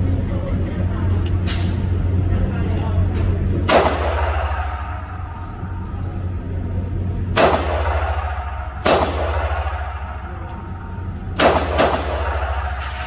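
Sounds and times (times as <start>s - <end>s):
steady low hum: 0.0s - 13.0s
pistol shots echoing: 3.7s - 5.2s, 7.4s - 10.3s, 11.3s - 13.0s.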